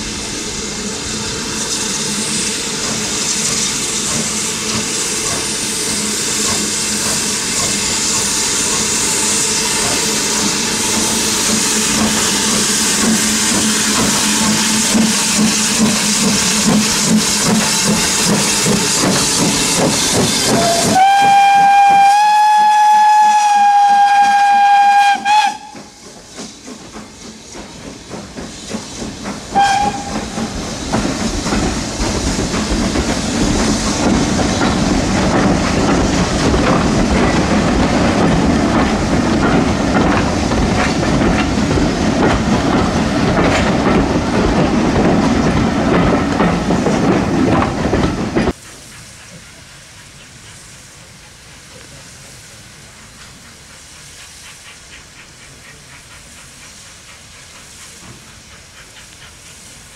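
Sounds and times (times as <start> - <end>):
steam locomotive chuffing: 0.0 - 59.9
train wheels clattering: 1.6 - 50.6
steam locomotive whistle: 20.5 - 26.0, 29.5 - 30.4.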